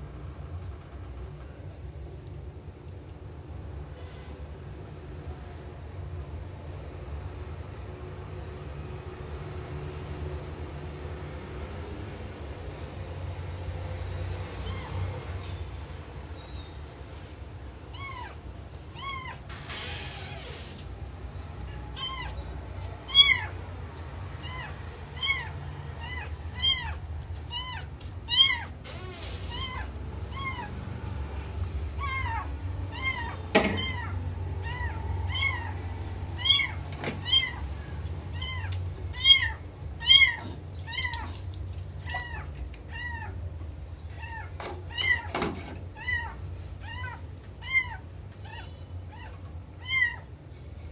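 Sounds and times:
kitten mewing: 21.7s - 22.4s, 23.0s - 23.6s, 24.4s - 28.8s, 32.0s - 37.6s, 38.4s - 43.4s.

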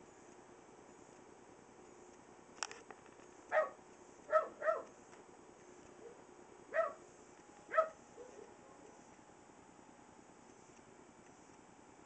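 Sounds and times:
puppy barking: 3.5s - 4.9s, 6.0s - 7.0s, 7.7s - 8.6s.

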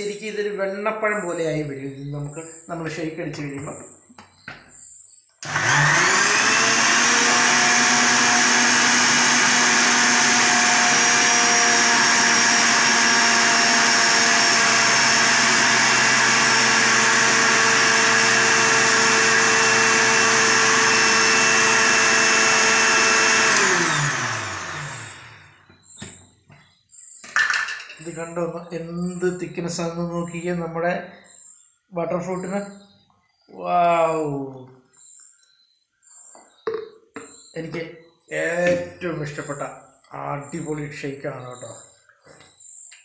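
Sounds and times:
electric blender motor running: 5.4s - 25.6s
motor winding down whine: 5.4s - 25.6s.

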